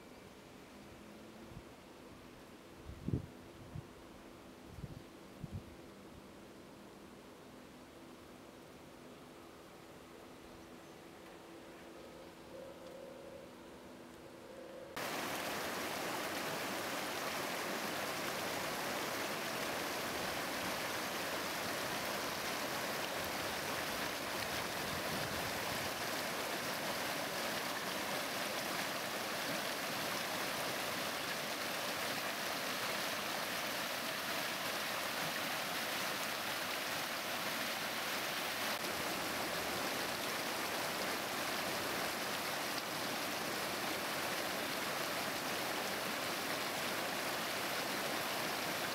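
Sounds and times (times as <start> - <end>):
flowing water rushing: 14.9 - 48.9.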